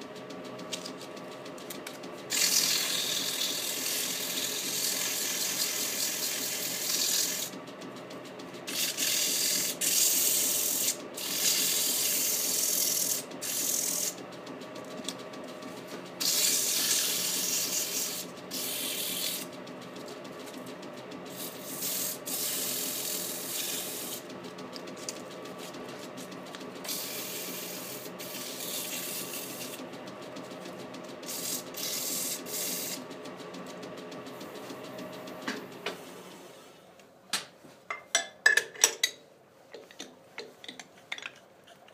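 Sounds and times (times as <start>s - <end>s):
wood lathe motor hum: 2.2s - 7.6s, 8.6s - 14.2s, 16.1s - 19.5s, 21.2s - 33.1s.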